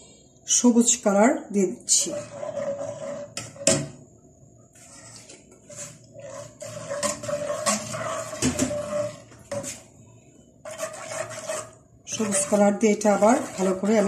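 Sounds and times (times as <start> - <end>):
metal spoon scraping a saucepan: 1.9 - 3.8, 4.8 - 9.9, 10.6 - 14.0.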